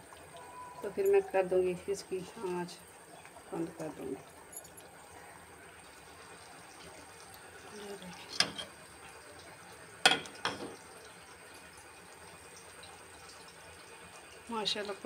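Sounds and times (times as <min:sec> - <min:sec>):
metal ladle clinking on steel pot: 0:08.4 - 0:08.7, 0:10.1 - 0:10.8.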